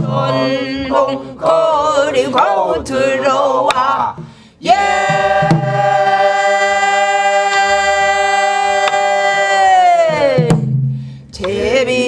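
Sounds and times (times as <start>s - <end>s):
barrel drum strokes: 3.6s - 6.4s.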